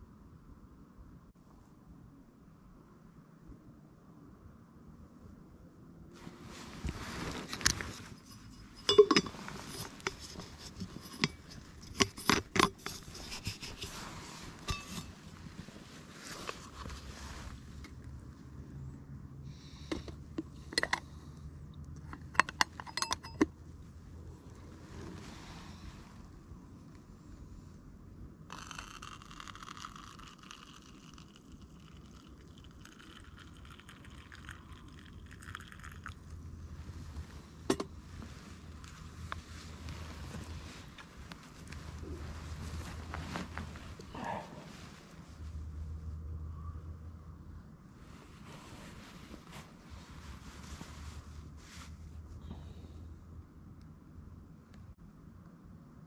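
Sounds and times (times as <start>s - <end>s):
rustling: 6.2s - 18.4s, 36.7s - 46.1s, 48.0s - 52.4s
metal container clinking: 7.4s - 13.9s, 14.6s - 15.1s, 22.2s - 23.5s
coffee pouring into a cup: 28.5s - 36.5s.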